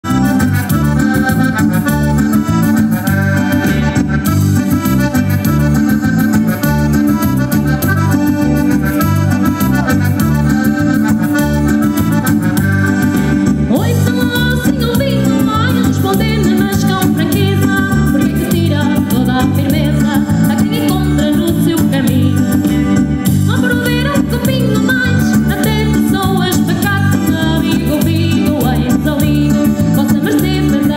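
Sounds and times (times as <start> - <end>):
accordion-toned lead: 0.0 - 30.9
live band playing: 0.0 - 30.9
woman singing: 13.7 - 22.8, 23.4 - 30.9.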